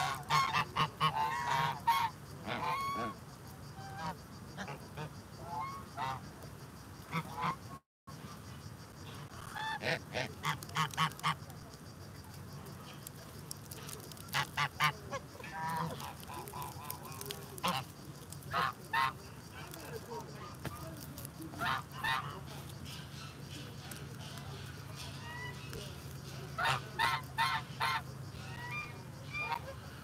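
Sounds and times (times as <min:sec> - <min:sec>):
geese honking: 0:00.0 - 0:03.2, 0:07.1 - 0:07.8, 0:09.4 - 0:11.4, 0:14.3 - 0:19.4, 0:21.5 - 0:30.0.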